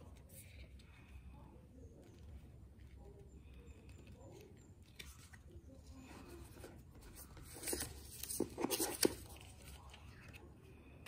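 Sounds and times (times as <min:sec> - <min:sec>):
paper rustling: 0:04.0 - 0:10.5.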